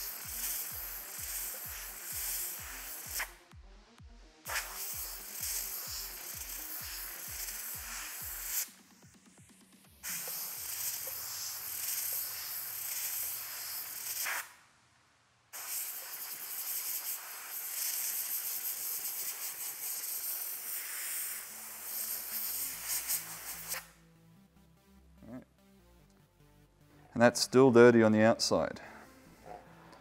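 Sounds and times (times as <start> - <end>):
compressed air blow gun hissing: 0.0 - 3.4, 4.5 - 8.8, 10.0 - 14.6, 15.6 - 23.9.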